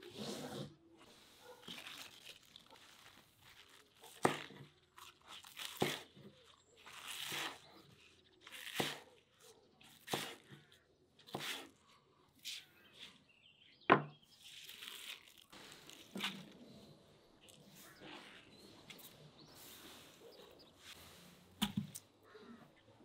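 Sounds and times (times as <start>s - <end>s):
knife slicing green onions: 8.5s - 9.1s, 9.8s - 11.7s.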